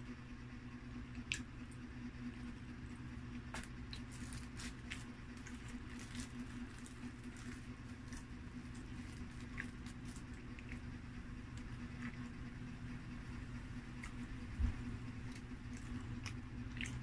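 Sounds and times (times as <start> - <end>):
steady low hum: 0.0 - 17.0
paper crinkling: 3.5 - 10.8.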